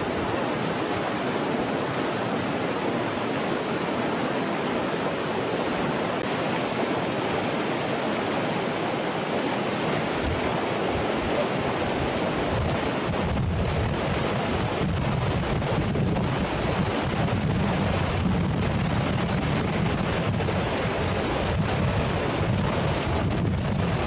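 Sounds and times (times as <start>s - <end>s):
river rushing over stones: 0.0s - 24.0s
wind rumble on microphone: 9.6s - 24.0s.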